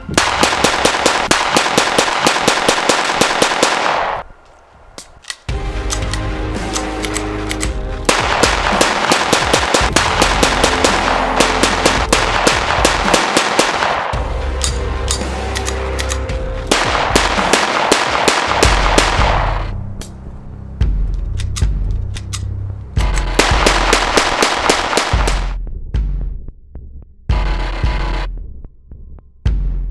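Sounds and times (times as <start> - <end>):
music: 0.0 - 1.1, 5.0 - 29.9
pistol shots cracking: 0.2 - 4.3, 6.7 - 14.2, 16.7 - 19.7, 23.0 - 25.5.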